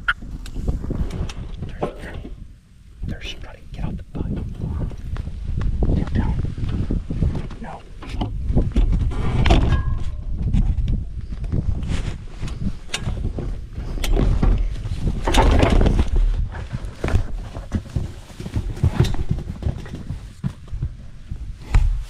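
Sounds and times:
grass rustling and crackling: 0:00.0 - 0:22.0
clothing rubbing against camera: 0:11.5 - 0:13.6.

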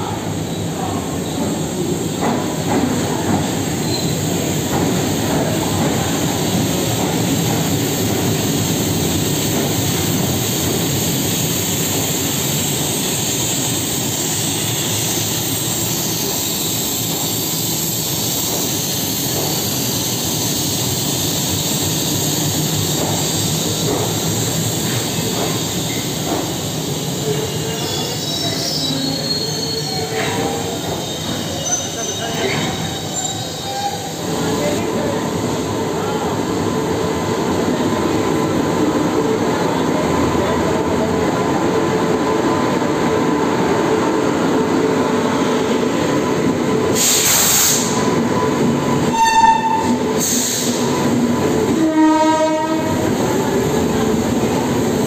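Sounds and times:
diesel locomotive engines droning: 0:00.0 - 0:55.0
train coaches rolling by: 0:00.0 - 0:55.0
high wheel squeal: 0:27.6 - 0:34.2, 0:49.0 - 0:50.7.

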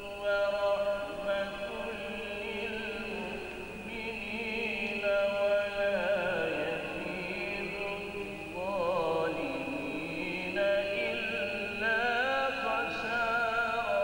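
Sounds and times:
man reciting melodically: 0:00.0 - 0:14.0.

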